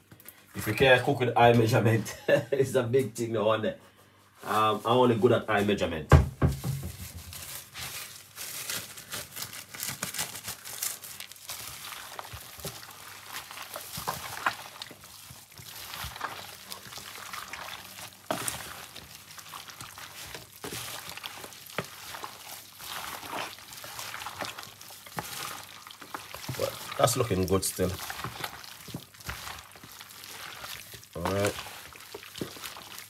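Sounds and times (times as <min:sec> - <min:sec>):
raw chicken squelching in marinade: 0:10.7 - 0:33.0.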